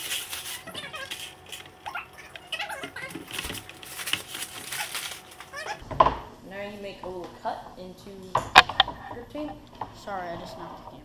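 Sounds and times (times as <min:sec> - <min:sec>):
hands rubbing grip tape: 0:00.0 - 0:02.4
backing paper crinkling: 0:00.0 - 0:05.8.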